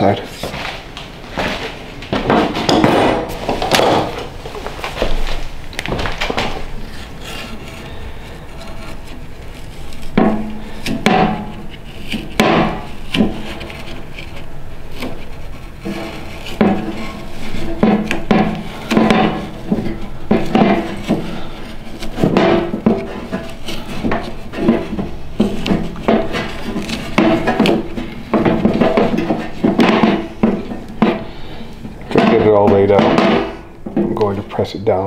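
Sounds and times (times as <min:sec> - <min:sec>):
rubbing on metal lid: 0:06.8 - 0:33.7.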